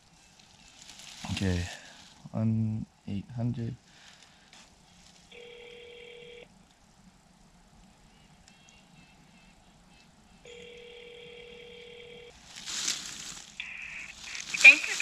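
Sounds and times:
telephone ringback tone: 0:05.3 - 0:06.5, 0:10.5 - 0:12.3.

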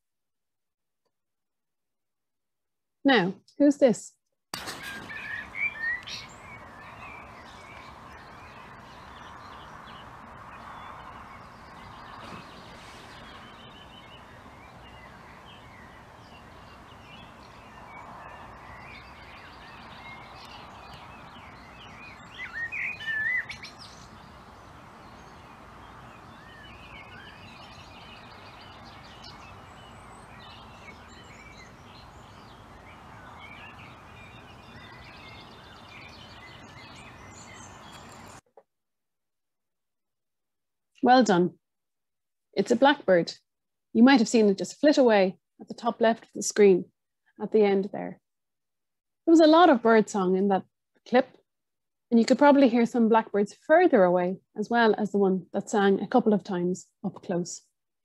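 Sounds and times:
outdoor background noise: 0:03.1 - 0:38.4, 0:52.1 - 0:57.6
chorus of birdsong: 0:04.6 - 0:38.4, 0:49.3 - 0:51.4
blackbird singing: 0:04.8 - 0:38.4.

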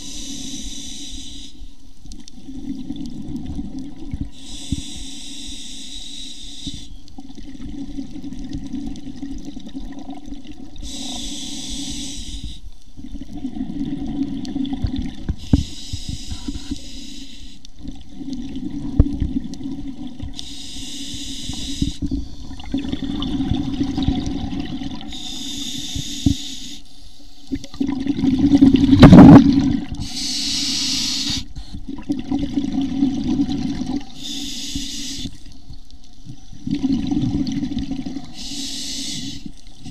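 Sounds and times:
regulator inhale hiss: 0:00.0 - 0:02.0, 0:04.3 - 0:07.1, 0:10.8 - 0:12.8, 0:15.3 - 0:17.8, 0:20.4 - 0:22.6, 0:25.0 - 0:27.5, 0:29.9 - 0:31.9, 0:34.1 - 0:35.5, 0:38.2 - 0:39.9
exhaled bubbles rumbling: 0:02.4 - 0:04.4, 0:07.2 - 0:10.8, 0:13.0 - 0:16.7, 0:17.8 - 0:20.4, 0:21.9 - 0:25.1, 0:27.5 - 0:30.1, 0:31.7 - 0:34.2, 0:35.7 - 0:38.4
loud gush of bubbles: 0:27.6 - 0:30.0.

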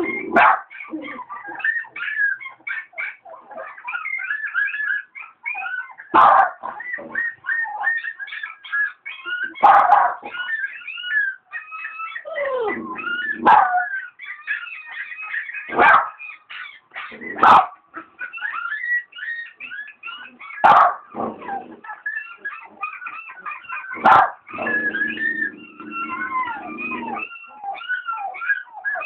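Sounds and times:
dog whining and yipping: 0:00.0 - 0:29.0
dog barking: 0:00.3 - 0:01.0, 0:06.1 - 0:07.2, 0:09.5 - 0:10.5, 0:13.4 - 0:13.9, 0:15.0 - 0:17.8, 0:20.4 - 0:21.5, 0:22.9 - 0:25.3.

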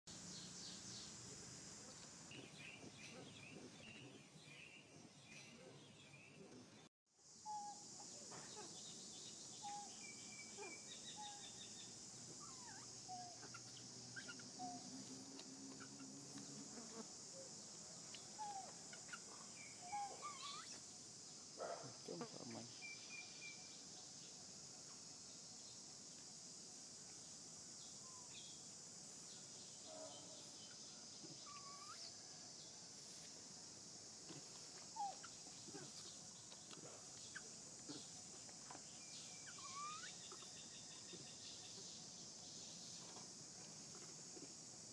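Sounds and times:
high-pitched insect drone: 0:37.2 - 0:44.9.

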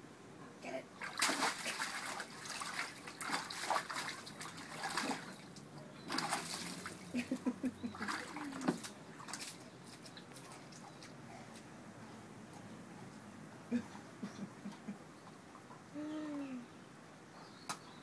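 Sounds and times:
dog splashing in bathwater: 0:01.0 - 0:11.1.

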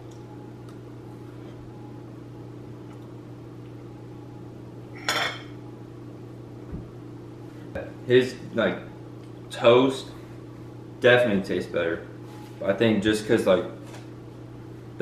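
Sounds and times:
low hum: 0:00.0 - 0:11.0.

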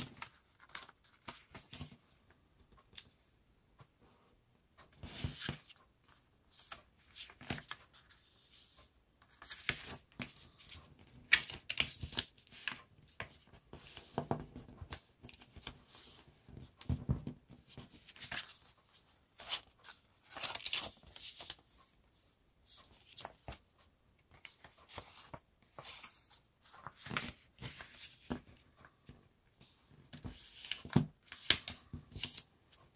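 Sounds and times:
paper rustling and crinkling: 0:00.0 - 0:02.0, 0:09.3 - 0:21.8, 0:24.3 - 0:28.6.

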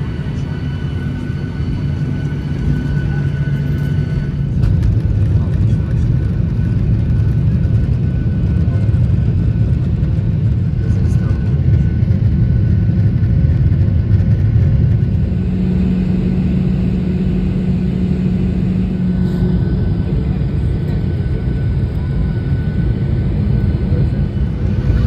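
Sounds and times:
low engine rumble: 0:00.0 - 0:25.0
steady hum: 0:12.2 - 0:25.0.

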